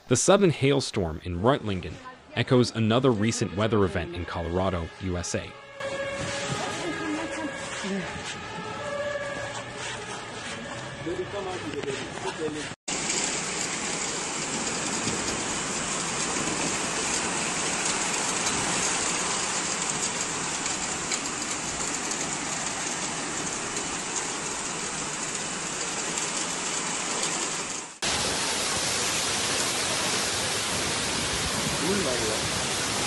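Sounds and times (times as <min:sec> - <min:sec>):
hail and heavy rain: 0:12.9 - 0:33.0.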